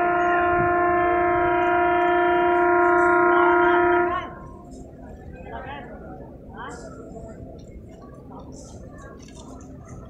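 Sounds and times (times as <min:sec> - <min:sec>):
train horn blast: 0:00.0 - 0:04.6.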